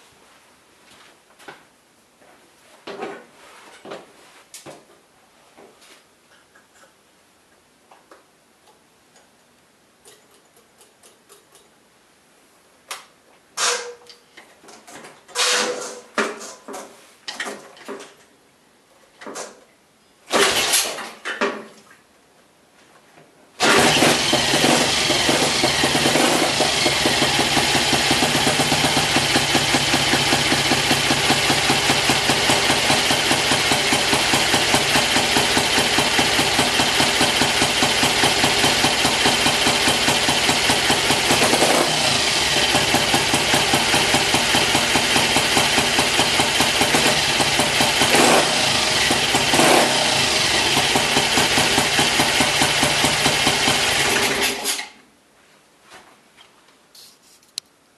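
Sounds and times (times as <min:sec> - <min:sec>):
motorcycle kickstart strokes: 0:20.3 - 0:21.1, 0:23.6 - 0:55.0
motorcycle engine idling: 0:23.7 - 0:54.4.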